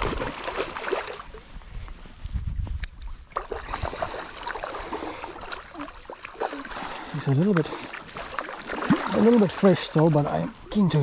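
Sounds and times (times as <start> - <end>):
flowing river water: 0.0 - 1.4, 3.2 - 11.0
fish splashing at surface: 3.4 - 9.7.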